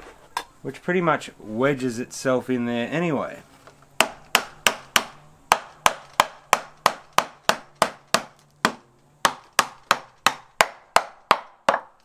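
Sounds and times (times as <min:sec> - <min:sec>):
hammer tapping wood: 0:04.0 - 0:12.0.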